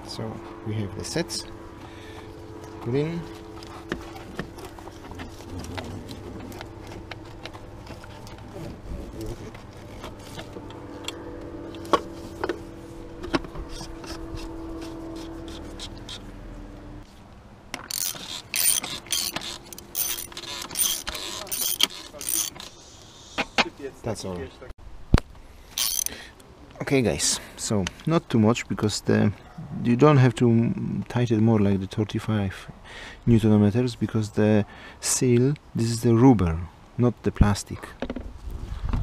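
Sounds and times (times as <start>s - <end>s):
steady low hum: 0.0s - 26.7s
ratchet wrench clicking: 17.8s - 22.8s, 25.8s - 26.2s.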